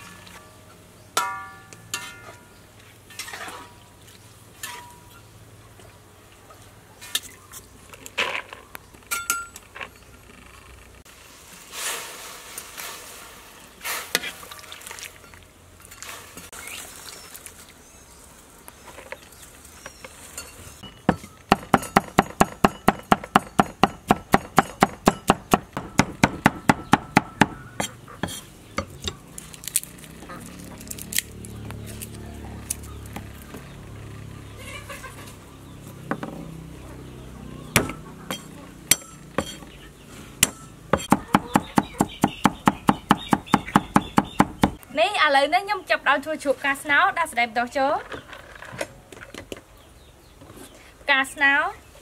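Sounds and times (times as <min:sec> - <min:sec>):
metal tongs scraping a wok: 0:01.2 - 0:02.5, 0:27.8 - 0:29.3, 0:38.3 - 0:39.8
knife chopping on wooden board: 0:40.4 - 0:44.8.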